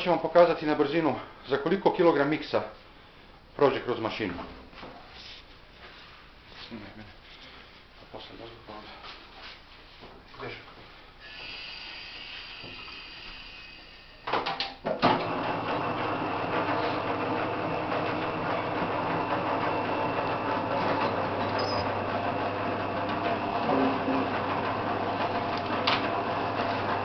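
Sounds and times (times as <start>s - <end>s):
rolling machine motor humming: 15.2s - 27.0s.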